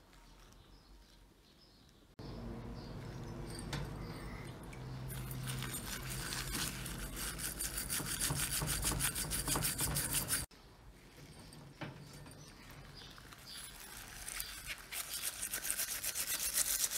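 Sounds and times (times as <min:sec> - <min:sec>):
steel wool scrubbing metal: 0:05.0 - 0:10.5, 0:11.4 - 0:16.9.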